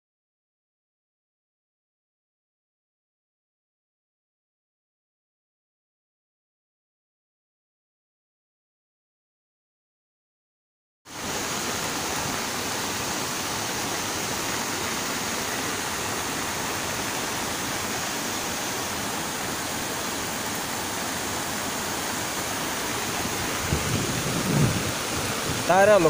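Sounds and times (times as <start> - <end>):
river water rushing: 11.1 - 26.0.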